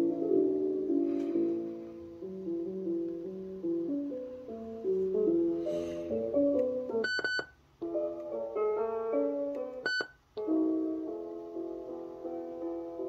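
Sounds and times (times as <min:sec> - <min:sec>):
music from cassette player: 0:06.3 - 0:08.4, 0:09.1 - 0:10.7.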